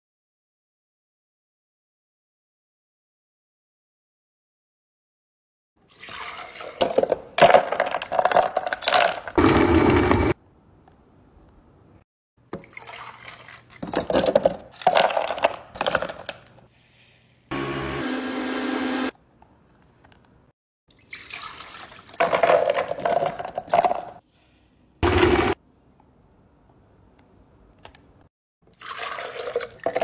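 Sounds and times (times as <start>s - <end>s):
blender grinding: 9.4s - 10.4s, 17.5s - 19.1s, 25.0s - 25.6s.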